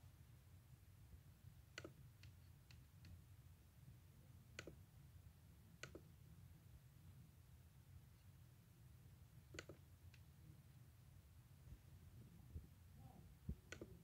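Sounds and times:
computer mouse clicks: 1.7 - 3.2, 4.5 - 4.8, 5.8 - 6.1, 9.5 - 10.3, 13.6 - 14.0.

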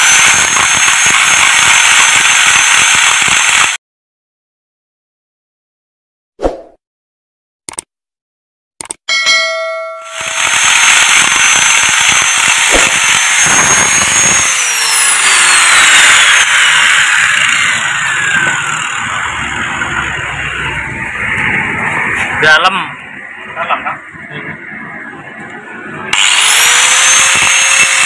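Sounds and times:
angle grinder motor whine: 0.0 - 3.8, 10.0 - 22.4, 25.3 - 28.0
grinding on metal drum: 10.1 - 20.0.

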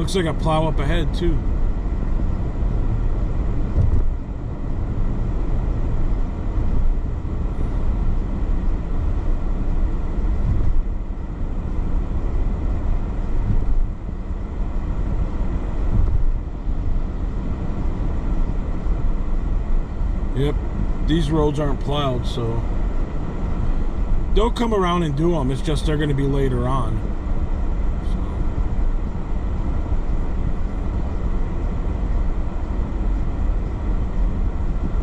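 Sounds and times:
car engine rumble: 0.0 - 35.0.

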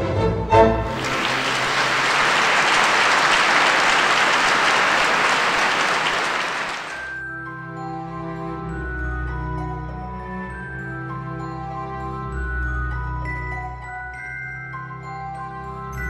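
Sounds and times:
orchestral waltz: 0.0 - 1.9
audience applauding: 0.9 - 7.2.

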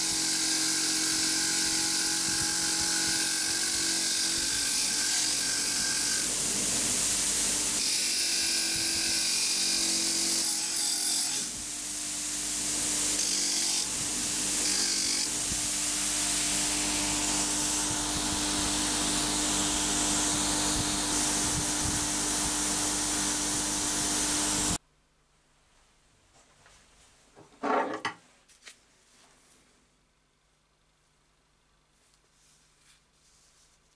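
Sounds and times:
bench grinder motor hum: 11.4 - 24.8.

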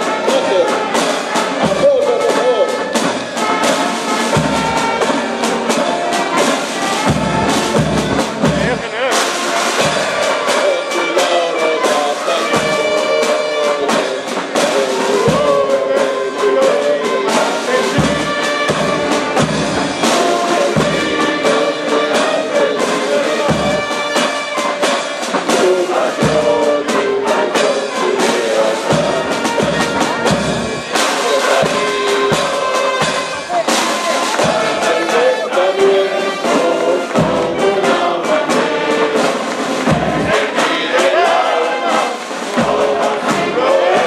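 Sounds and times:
brass band playing a march: 0.0 - 44.0
low drum beat: 0.1 - 44.0.

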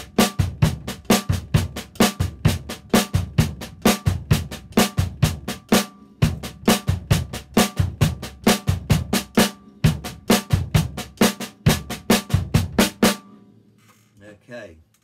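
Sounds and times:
kick drum thumps: 6.2 - 9.3.

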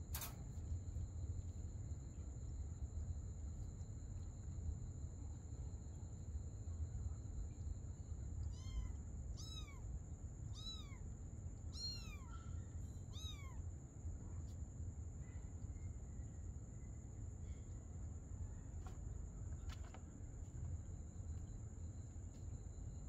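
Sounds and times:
kitten mewing: 11.8 - 12.4.

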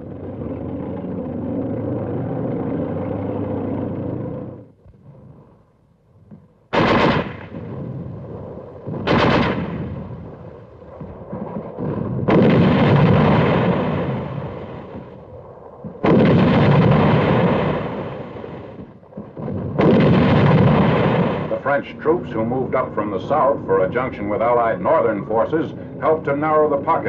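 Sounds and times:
tank engine rumbling: 0.0 - 27.0
gunfire: 6.7 - 22.2.

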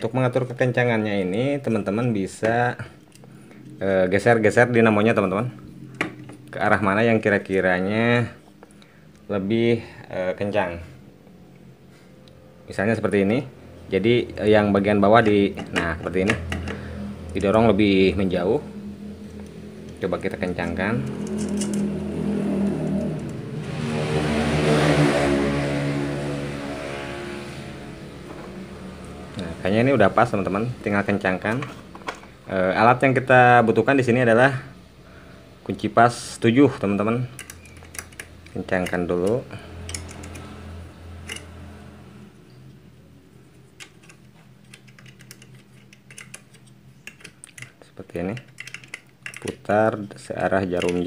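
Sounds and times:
passing vehicle engine: 10.7 - 33.7, 36.7 - 44.6
wrench clicking on bolt: 37.4 - 40.5, 41.2 - 41.5, 43.8 - 47.7.

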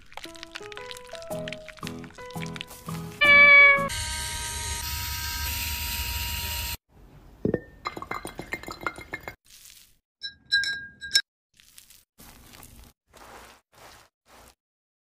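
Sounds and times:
spoon clinking against glass: 10.2 - 11.2.

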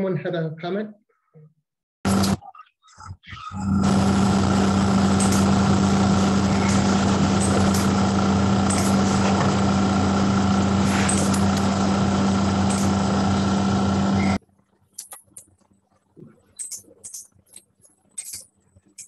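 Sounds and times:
loud machine hum: 2.1 - 2.4, 3.5 - 14.4.

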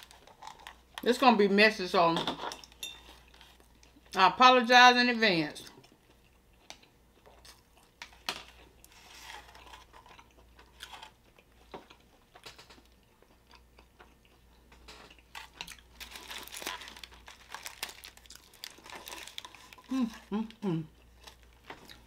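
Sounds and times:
biting and chewing: 5.7 - 20.3
foil wrapper crinkling: 15.4 - 19.9.

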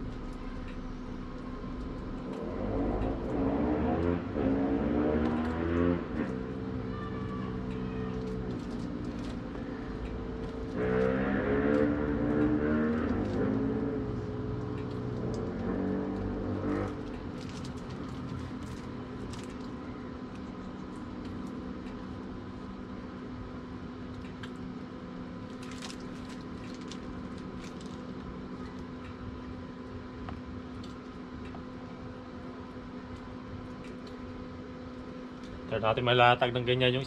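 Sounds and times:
low background hum: 0.0 - 37.0.

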